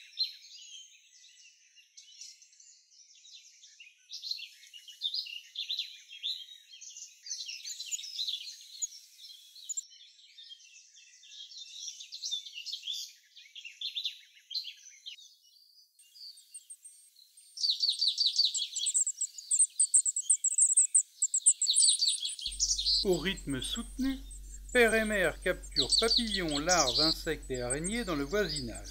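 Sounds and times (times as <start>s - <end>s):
high bird chirps and twitters: 16.0s - 28.9s.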